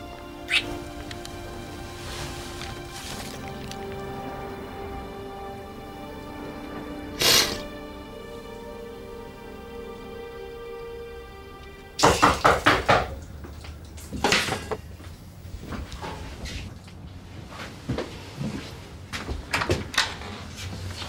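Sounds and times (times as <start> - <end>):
dramatic score music: 0.0 - 14.2
hard knocks on a door: 12.0 - 13.2.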